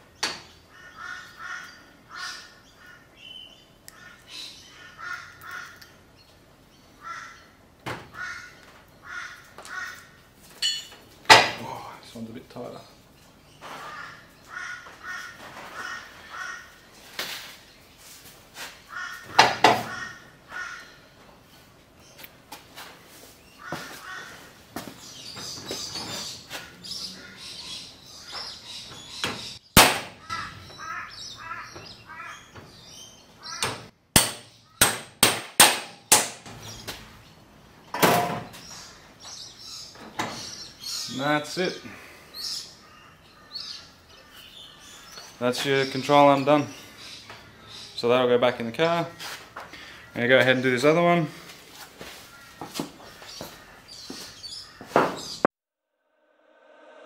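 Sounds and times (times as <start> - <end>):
crow cawing: 0.7 - 3.3, 3.9 - 5.9, 7.0 - 10.2, 13.7 - 16.9, 18.8 - 21.2, 23.6 - 24.6, 30.1 - 32.6, 42.7 - 45.3, 49.1 - 50.2, 52.2 - 55.0
hammer striking metal: 34.2 - 36.5.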